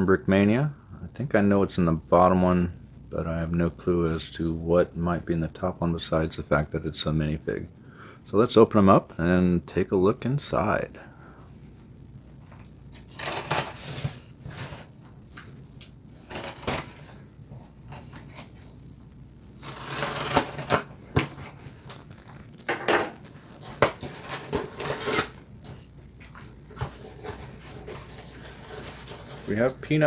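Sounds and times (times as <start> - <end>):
cardboard scraping and rustling: 13.0 - 14.9, 16.1 - 18.7, 19.6 - 22.0, 22.8 - 30.0
blade slitting packing tape: 19.6 - 20.9.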